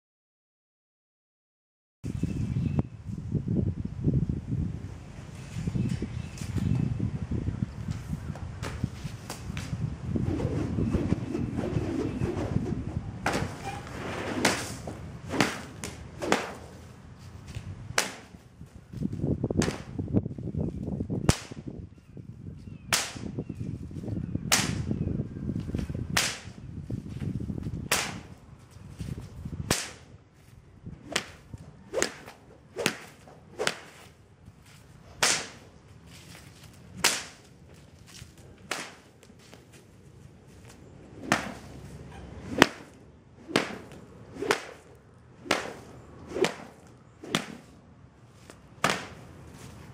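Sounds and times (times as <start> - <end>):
sharp cracks: 14.3 - 16.8, 18.0 - 18.4, 24.5 - 24.9, 26.1 - 26.6, 27.9 - 28.3, 29.7 - 30.1, 35.2 - 35.6, 37.0 - 37.5, 38.6 - 39.3, 41.2 - 41.8, 42.5 - 47.8, 48.5 - 49.3.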